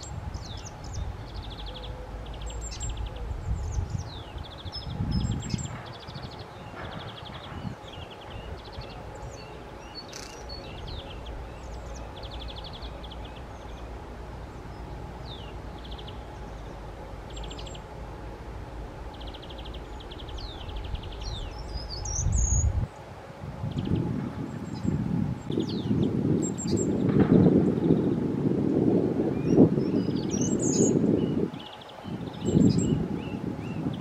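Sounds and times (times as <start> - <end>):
high bird trills: 0.0 - 17.9
wind rumble on microphone: 0.0 - 34.0.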